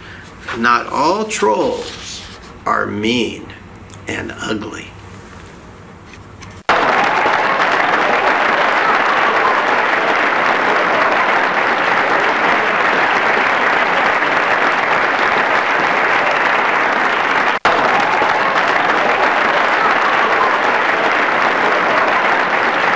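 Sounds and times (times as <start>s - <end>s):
crowd applauding: 6.7s - 22.9s.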